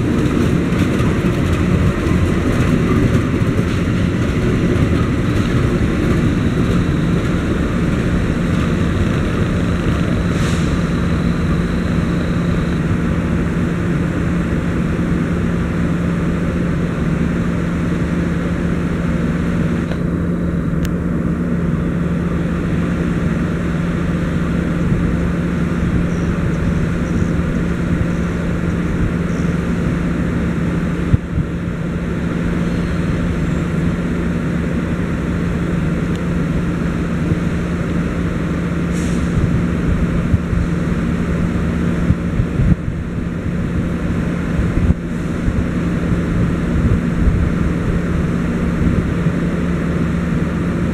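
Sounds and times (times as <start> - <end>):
diesel train engine droning: 0.0 - 50.9.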